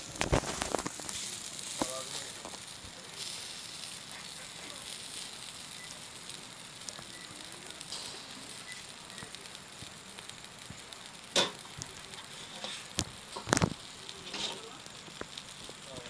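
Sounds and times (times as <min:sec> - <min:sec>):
fish sizzling on charcoal grill: 0:00.0 - 0:16.0.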